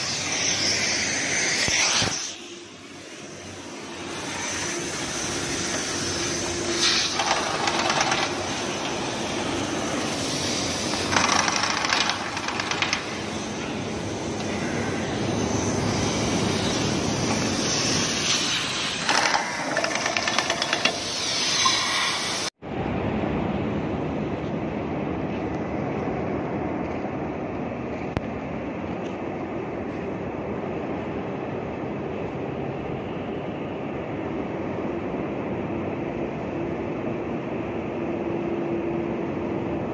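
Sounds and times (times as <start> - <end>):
pneumatic impact wrench hammering: 0.0 - 2.4, 4.0 - 22.5
loud steady machinery noise: 0.0 - 28.2.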